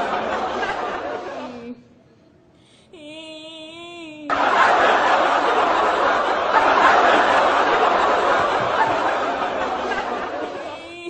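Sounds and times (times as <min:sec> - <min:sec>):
crowd chatter: 0:00.0 - 0:01.7, 0:04.3 - 0:11.0
crowd laughter: 0:00.0 - 0:01.7, 0:04.3 - 0:11.0.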